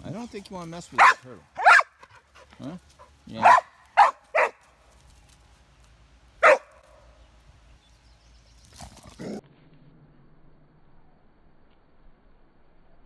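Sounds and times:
dog barking: 1.0 - 2.1, 3.4 - 4.6, 6.4 - 6.8.

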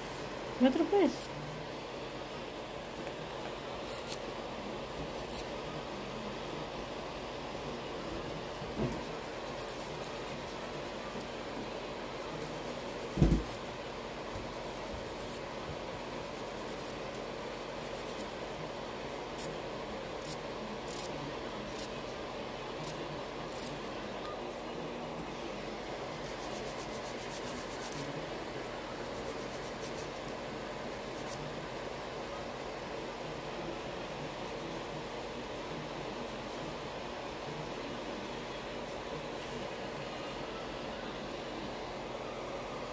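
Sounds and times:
steady background hiss: 0.0 - 42.9
dull thump: 13.2 - 13.5.

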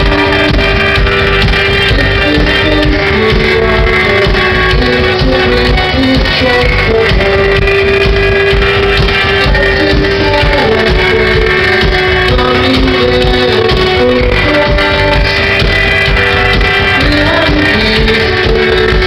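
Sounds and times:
rock band playing live: 0.0 - 19.0.

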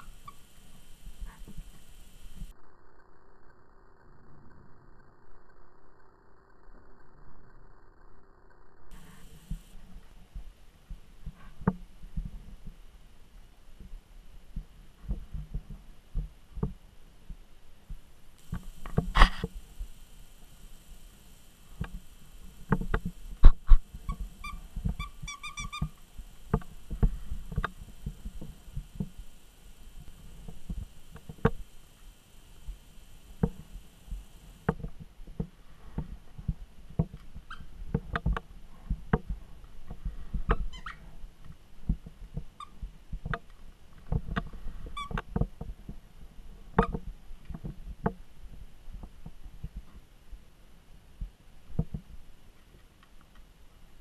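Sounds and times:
short high squeaks: 0.0 - 2.5, 18.4 - 31.7.

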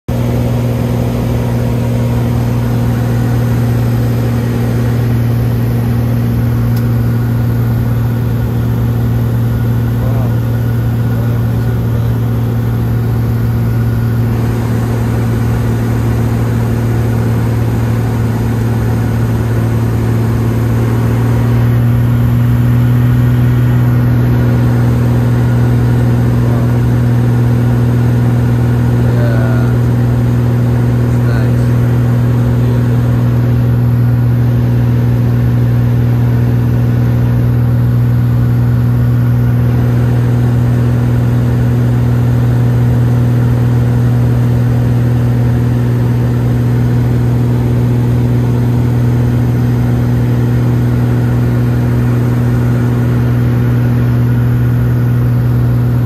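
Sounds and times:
propeller plane engine drone: 0.1 - 56.0.

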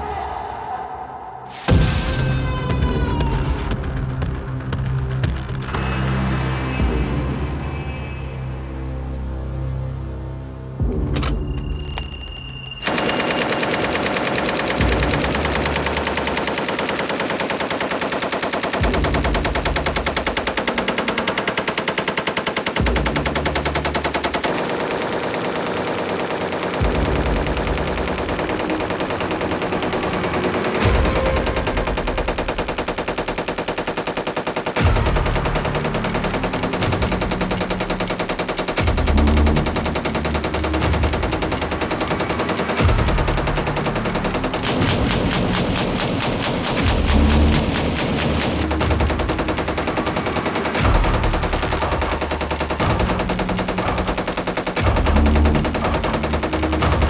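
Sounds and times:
machine gun automatic fire: 12.8 - 57.0.

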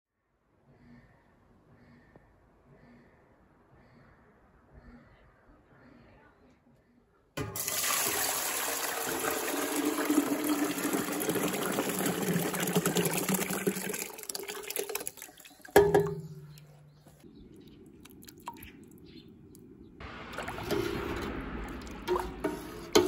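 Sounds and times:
water and grain pouring into pot: 7.4 - 16.2, 20.2 - 23.0.

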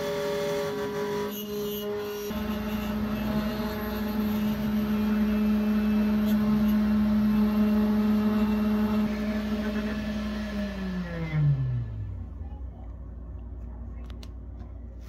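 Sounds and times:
router spindle whining: 0.0 - 12.3.

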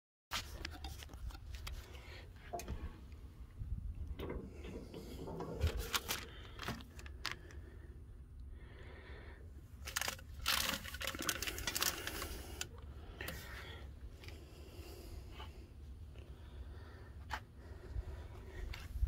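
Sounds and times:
paper and plastic crinkling: 5.6 - 7.6, 9.8 - 13.4.

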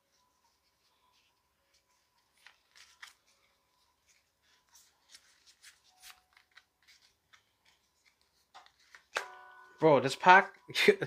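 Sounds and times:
trading cards clicking and rustling: 0.8 - 9.4.

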